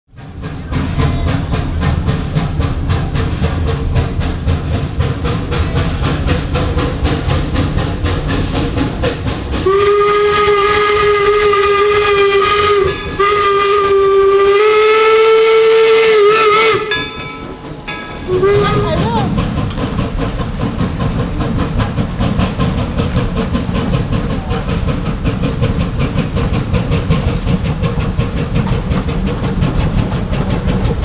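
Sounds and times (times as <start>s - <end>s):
steam locomotive exhaust chuffing: 0.1s - 31.0s
steam whistle blowing: 9.6s - 17.2s, 18.3s - 18.8s.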